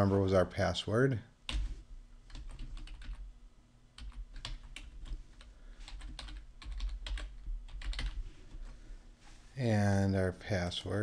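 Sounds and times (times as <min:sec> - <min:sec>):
computer keyboard typing: 0:01.5 - 0:03.3, 0:04.0 - 0:08.2.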